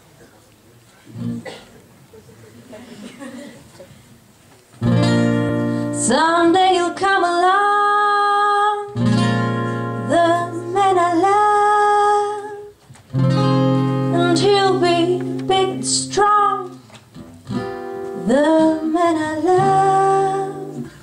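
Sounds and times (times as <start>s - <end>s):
acoustic guitar chords: 4.8s - 21.0s
woman singing a ballad: 5.8s - 9.0s, 9.8s - 12.7s, 14.0s - 16.8s, 18.1s - 21.0s.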